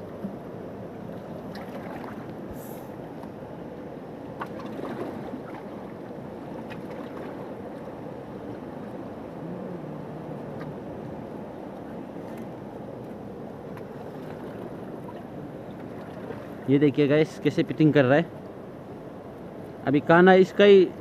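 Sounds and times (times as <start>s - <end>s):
river water rushing over rocks: 4.2s - 13.8s.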